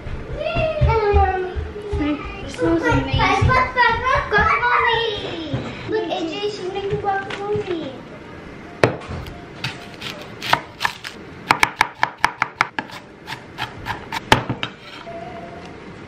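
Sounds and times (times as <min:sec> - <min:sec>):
knife chopping on wooden board: 0:09.6 - 0:14.8.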